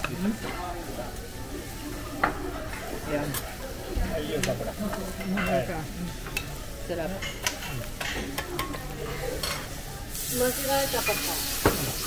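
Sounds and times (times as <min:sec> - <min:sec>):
food sizzling on a griddle: 0:00.0 - 0:07.9, 0:09.3 - 0:12.0.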